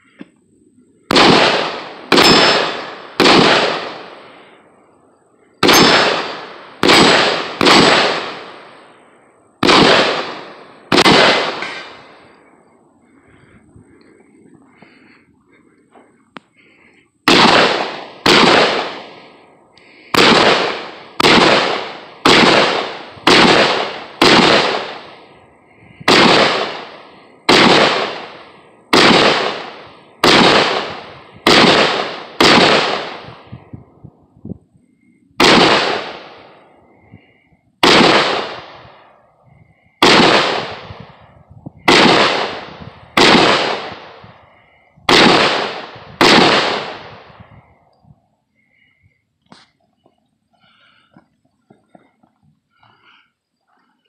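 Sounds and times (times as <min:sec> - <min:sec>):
gunshots with echo: 0:01.1 - 0:04.6, 0:05.6 - 0:09.0, 0:09.6 - 0:12.5, 0:16.6 - 0:25.3, 0:26.0 - 0:33.6, 0:35.4 - 0:47.8.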